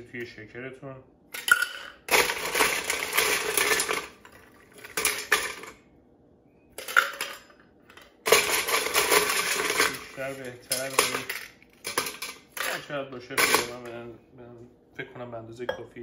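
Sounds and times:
ice cubes clattering into metal shaker: 1.6s - 5.7s, 8.3s - 12.8s.

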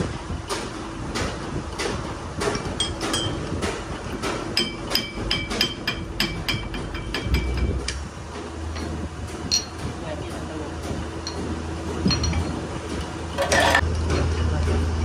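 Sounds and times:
hammer striking metal: 2.4s - 8.0s.

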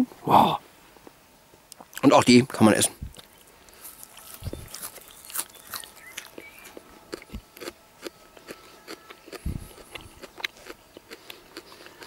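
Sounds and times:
leaf crunching while chewed: 3.1s - 12.0s.

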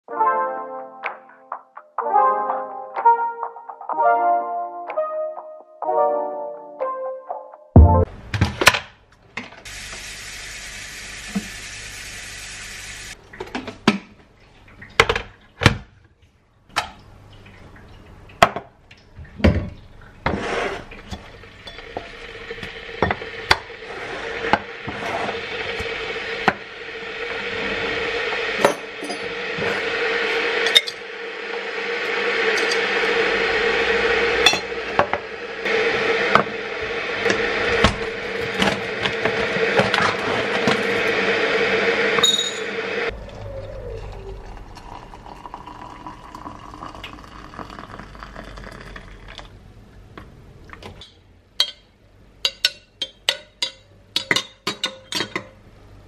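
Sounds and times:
electric kettle heating up: 9.4s - 13.2s, 20.8s - 49.6s
glassware clinking on stone worktop: 42.2s - 42.6s, 52.5s - 55.5s.

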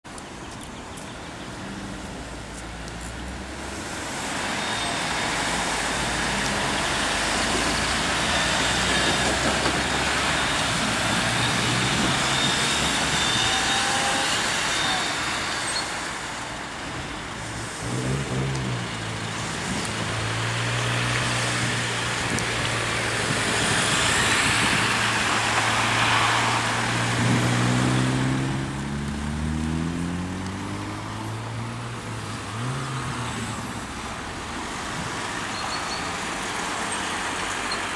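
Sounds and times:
cars driving past: 1.6s - 37.9s
car engine revving pulling away: 3.3s - 15.8s, 17.6s - 33.9s.

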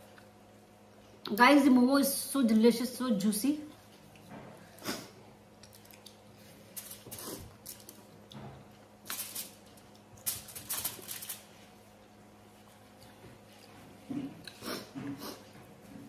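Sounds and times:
foil trays crackling: 9.0s - 11.6s.

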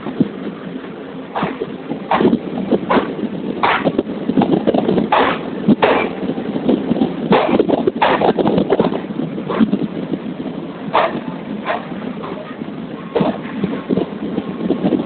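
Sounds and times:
train rumbling rush: 0.0s - 15.0s
train wheels clattering: 1.3s - 9.9s, 10.9s - 14.2s.

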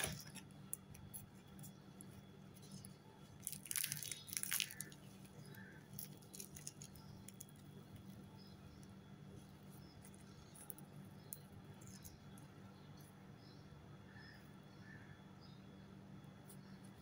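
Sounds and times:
pastry crust crackling: 0.0s - 12.6s
faint low hum: 0.0s - 17.0s.

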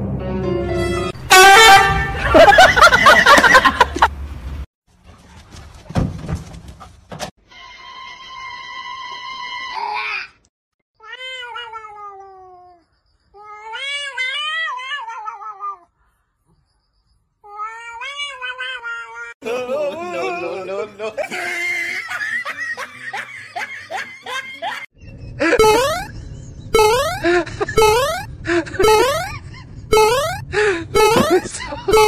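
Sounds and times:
laughter: 2.1s - 4.1s, 19.4s - 29.9s, 31.0s - 32.0s
cat yowling: 11.0s - 12.8s, 13.4s - 15.9s, 17.5s - 19.4s.

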